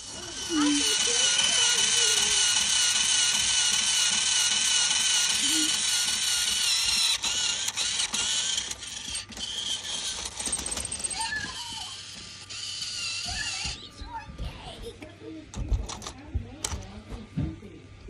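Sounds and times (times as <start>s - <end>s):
toy train motor whine: 0.0s - 14.2s.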